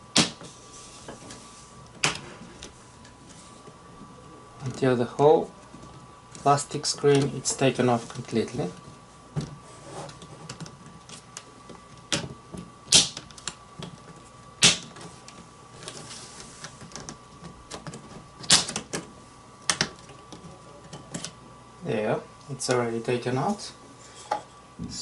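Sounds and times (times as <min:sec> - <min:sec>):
plastic clips snapping: 0:16.8 - 0:21.4.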